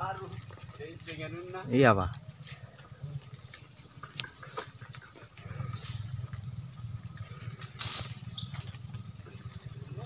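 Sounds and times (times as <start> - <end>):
high insect drone: 0.0 - 10.0
low pulsing rumble: 5.3 - 10.0.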